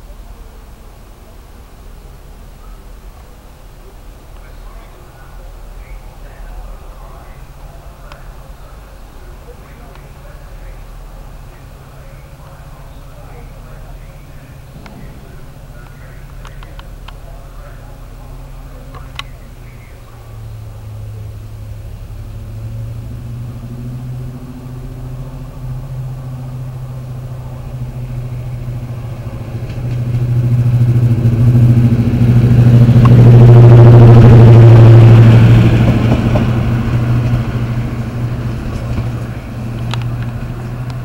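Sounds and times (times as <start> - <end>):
diesel locomotive passing: 0.0 - 41.0.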